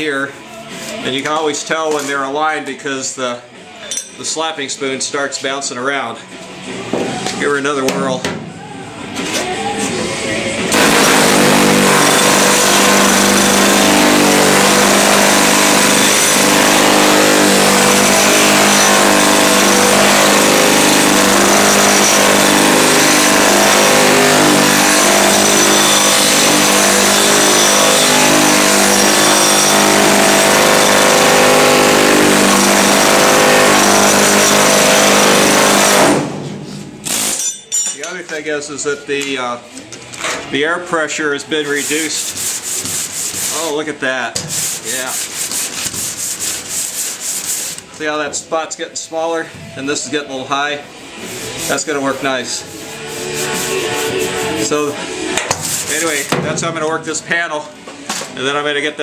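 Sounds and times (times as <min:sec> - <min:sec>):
air hammer on steel panel: 0:10.7 - 0:37.8, 0:41.9 - 0:43.7, 0:51.0 - 0:56.6.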